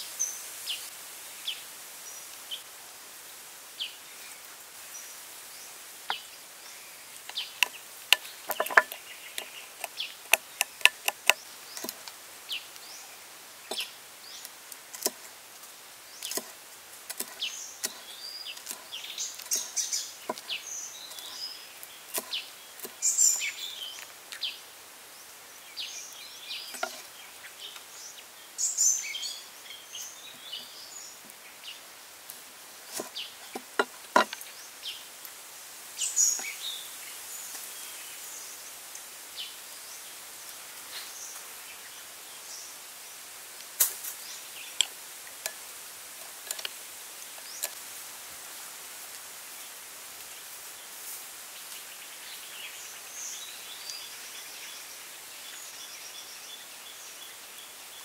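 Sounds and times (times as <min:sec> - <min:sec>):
birds chirping: 0:03.8 - 0:15.3, 0:16.0 - 0:32.0, 0:32.8 - 0:35.2, 0:36.0 - 0:38.7, 0:46.2 - 0:47.8
knife chopping on wooden board: 0:08.5 - 0:11.4, 0:32.9 - 0:34.4.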